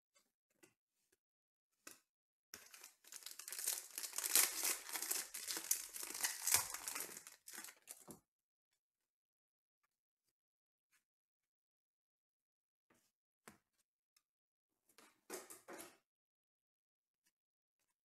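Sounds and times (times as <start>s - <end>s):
foil wrapper tearing and crinkling: 2.6s - 8.1s.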